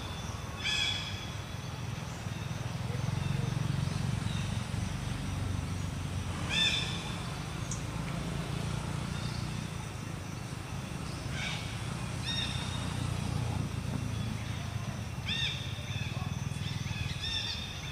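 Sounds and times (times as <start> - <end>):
baby monkey high-pitched calls: 6.5 - 7.0.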